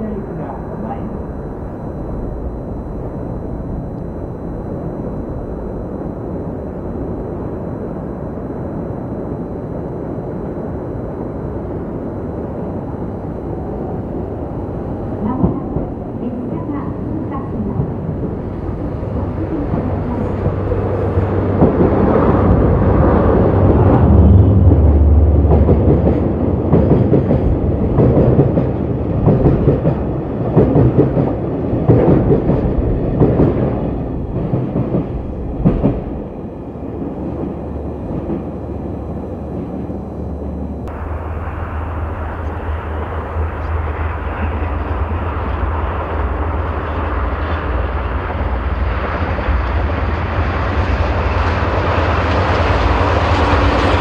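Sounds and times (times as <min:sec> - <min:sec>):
diesel locomotive engine drone: 0:00.0 - 0:54.0.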